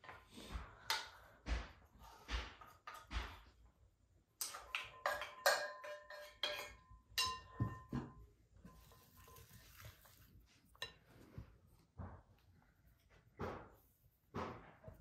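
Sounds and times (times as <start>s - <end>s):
spatula clinking on ceramic bowl: 4.4s - 9.8s
wooden spoon stirring in glass bowl: 8.6s - 12.2s.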